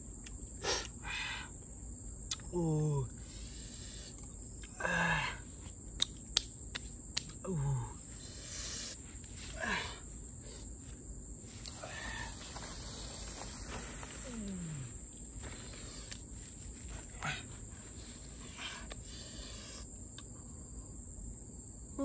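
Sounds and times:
high insect drone: 0.0 - 22.0
banana leaf rustling: 10.4 - 18.2.

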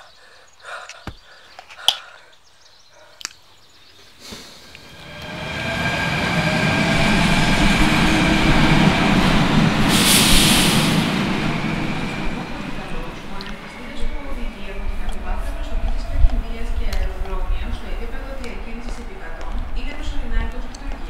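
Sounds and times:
metro train rumble: 4.6 - 21.0
steady whining tones: 4.7 - 20.7
burst of hiss: 9.8 - 11.6.

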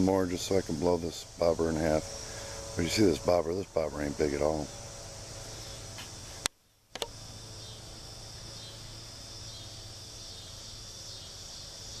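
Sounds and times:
crickets chirping chorus: 0.0 - 12.0
sharp click: 6.0 - 7.2.

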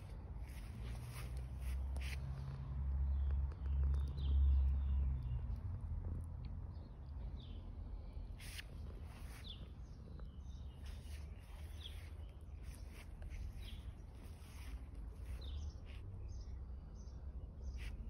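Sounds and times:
small bird chirping: 6.7 - 18.0.

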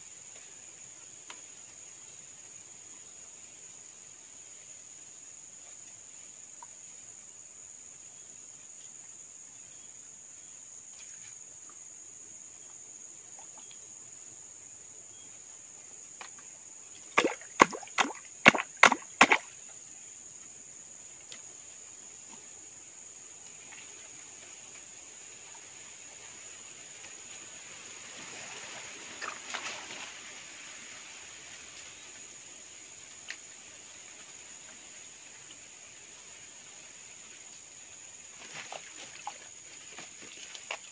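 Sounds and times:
insects droning: 0.0 - 40.9
soft splashing: 16.2 - 19.6
hand slapping water: 17.2 - 19.5.

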